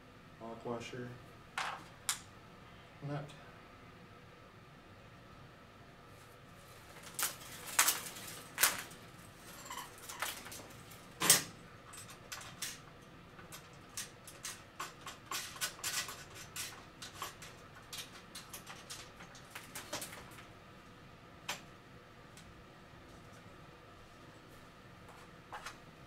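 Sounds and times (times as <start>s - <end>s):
metal hardware clicking and rattling: 9.6s - 20.2s.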